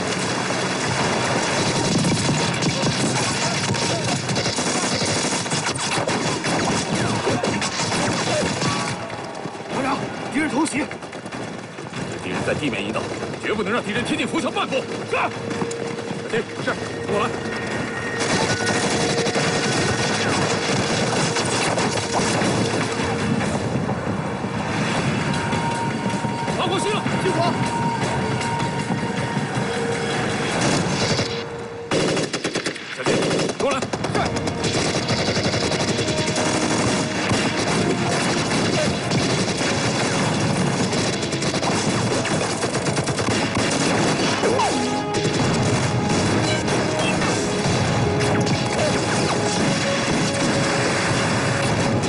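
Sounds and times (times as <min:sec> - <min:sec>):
rifle and machine-gun fire: 0:00.0 - 0:09.4, 0:18.0 - 0:23.6, 0:30.0 - 0:52.0
sharp cracks: 0:00.0 - 0:10.0, 0:18.0 - 0:23.6, 0:30.6 - 0:52.0
battle rumbling din: 0:00.0 - 0:52.0
film music score: 0:00.0 - 0:52.0.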